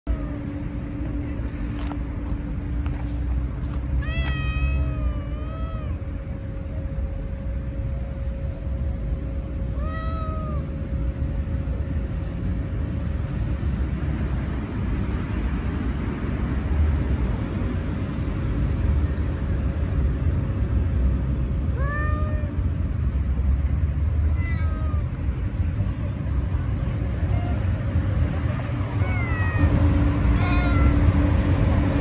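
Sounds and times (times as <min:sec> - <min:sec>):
steady low rumble: 0:00.0 - 0:32.0
cat meowing: 0:04.0 - 0:06.0, 0:09.8 - 0:10.7, 0:21.7 - 0:22.6, 0:24.3 - 0:25.2, 0:29.0 - 0:29.7, 0:30.4 - 0:31.1.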